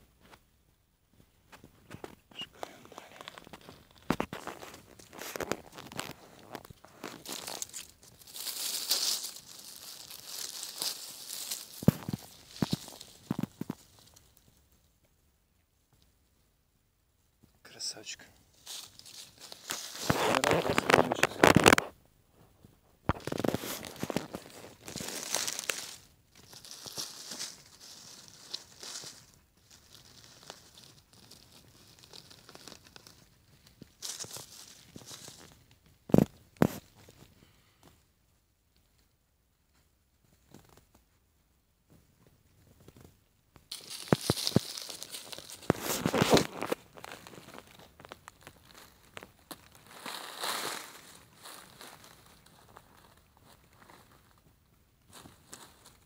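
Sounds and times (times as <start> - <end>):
footsteps on dry leaves: 3.0 - 14.2, 18.6 - 21.8, 23.1 - 35.6, 43.7 - 54.2
leaf litter rustling: 3.0 - 14.2, 18.6 - 21.8, 23.2 - 35.6, 43.7 - 54.1.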